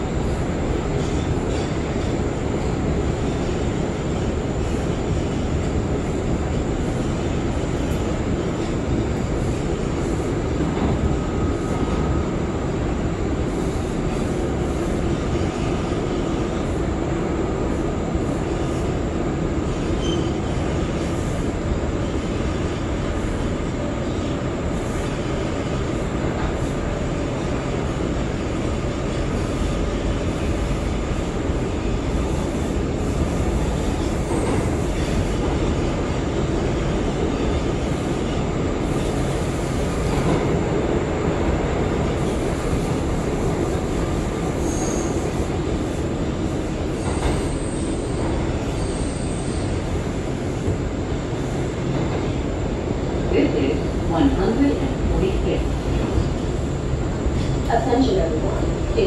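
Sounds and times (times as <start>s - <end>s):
subway train wheels rumbling: 0.0s - 59.0s.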